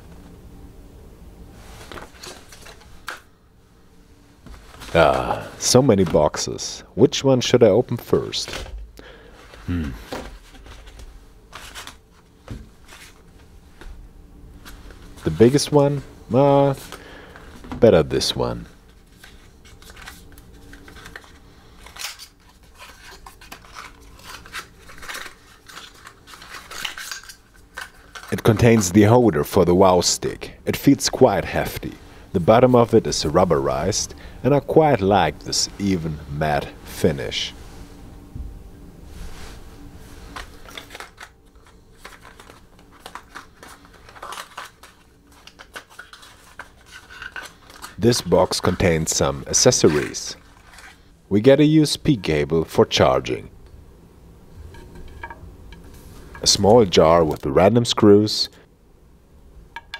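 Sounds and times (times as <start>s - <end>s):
cardboard scraping and rustling: 10.0s - 13.3s.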